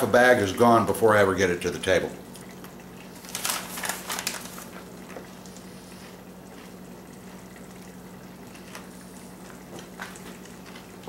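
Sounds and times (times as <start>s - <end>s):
faint steady hum: 0.0s - 11.0s
pot simmering: 0.0s - 11.0s
crunching corn chips: 3.2s - 5.2s.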